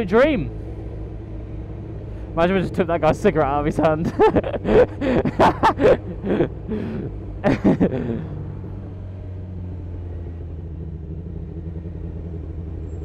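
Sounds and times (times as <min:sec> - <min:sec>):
man talking: 0:00.0 - 0:00.5, 0:02.4 - 0:06.0
motorcycle engine running: 0:00.0 - 0:13.0.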